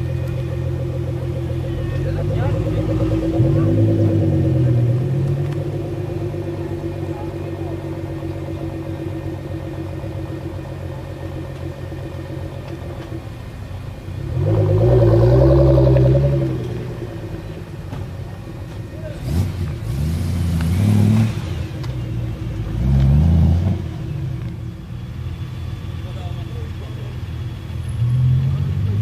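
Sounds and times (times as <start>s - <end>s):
sports car engines running: 0.0s - 29.0s
car driving past: 14.2s - 24.5s.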